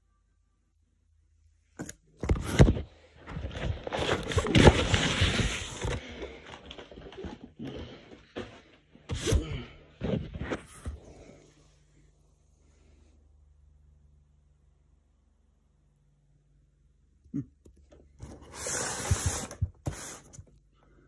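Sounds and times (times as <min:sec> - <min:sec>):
scraping and rustling of cardboard: 0:01.8 - 0:11.3, 0:18.1 - 0:20.6.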